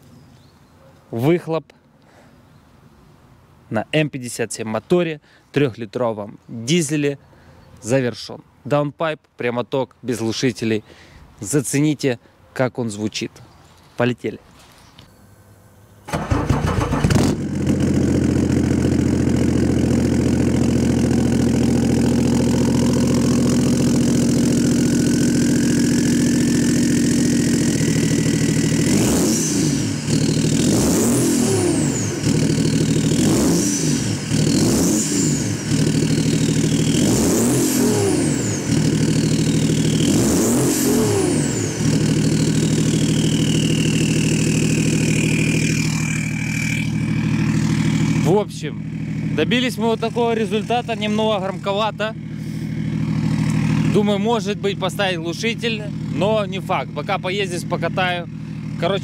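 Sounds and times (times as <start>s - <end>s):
engine revving: 16.1s - 56.5s
diesel engine idling: 16.1s - 59.0s.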